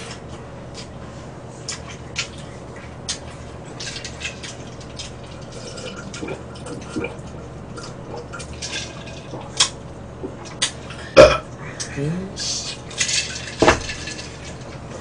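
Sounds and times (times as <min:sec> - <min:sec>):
water gulping: 0:01.7 - 0:11.6.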